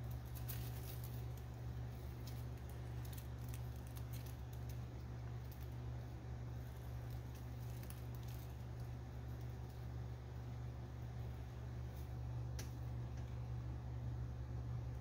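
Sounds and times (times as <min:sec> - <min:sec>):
snake crawling through dry leaves: 0:00.0 - 0:10.4
steady low hum: 0:00.0 - 0:15.0.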